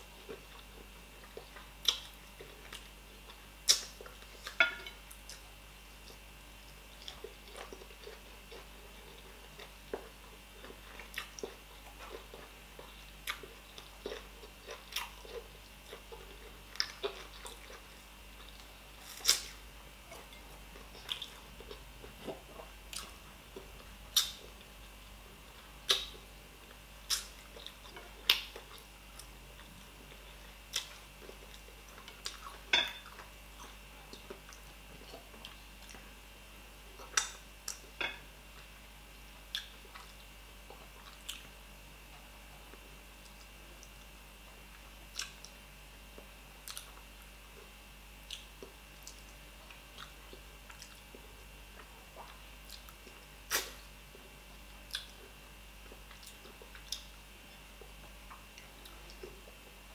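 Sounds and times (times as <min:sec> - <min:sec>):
person chewing: 0:00.2 - 0:36.1, 0:39.5 - 0:45.6, 0:46.2 - 0:59.8
lip smacks and sucking clicks: 0:52.6 - 0:53.8.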